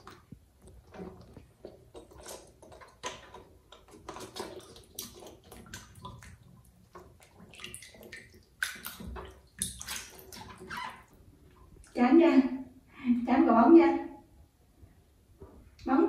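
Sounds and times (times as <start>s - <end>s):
water splashing in a plastic tub: 0.0s - 12.7s.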